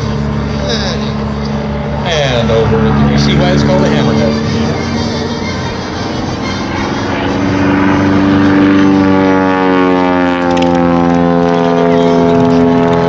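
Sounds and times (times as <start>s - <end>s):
biplane engine and propeller droning: 0.0s - 13.0s.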